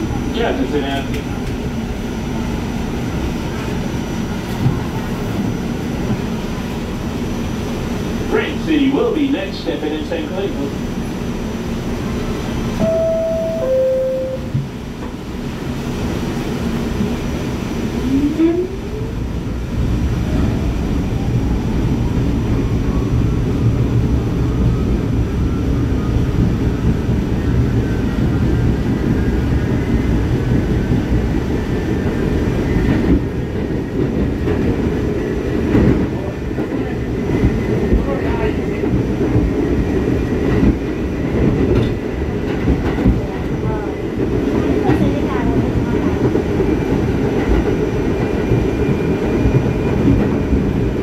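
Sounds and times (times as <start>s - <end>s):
subway car rumbling on track: 0.0s - 51.0s
two-note falling chime: 12.8s - 14.6s.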